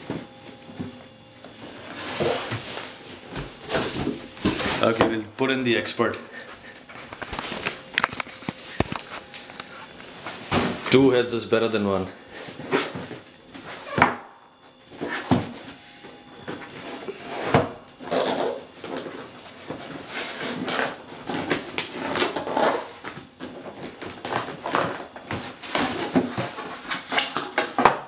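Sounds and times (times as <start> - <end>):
cardboard flaps scraping and rustling: 0.0 - 5.2, 6.8 - 11.0.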